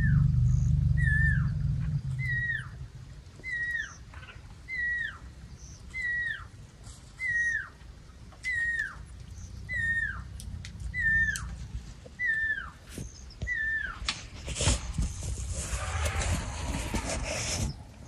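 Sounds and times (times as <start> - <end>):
night bird whistled call: 0.0 - 1.6, 2.2 - 2.8, 3.4 - 4.0, 4.7 - 6.5, 7.2 - 7.8, 8.4 - 10.3, 11.0 - 11.6, 12.2 - 14.1
low rumble from elephants: 0.0 - 5.0, 8.9 - 12.9, 13.5 - 18.0.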